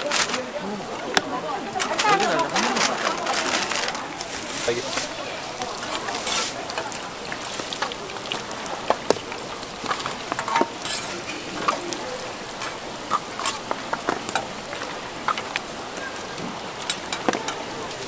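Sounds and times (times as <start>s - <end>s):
food sizzling in oil: 4.1s - 18.0s.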